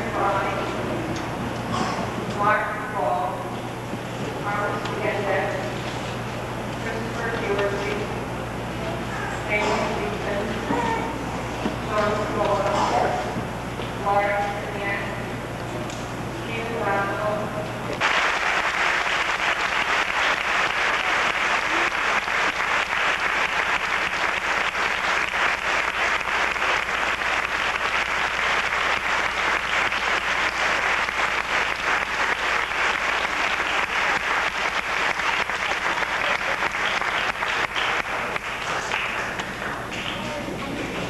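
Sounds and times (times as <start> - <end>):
audience applauding: 18.0 - 41.0.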